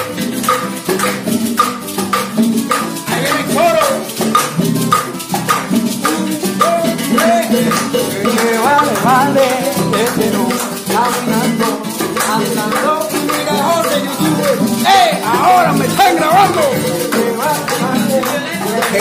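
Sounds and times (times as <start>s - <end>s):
acoustic guitar: 0.0s - 19.0s
maraca shaking: 0.0s - 19.0s
person singing: 3.0s - 4.2s, 6.4s - 19.0s.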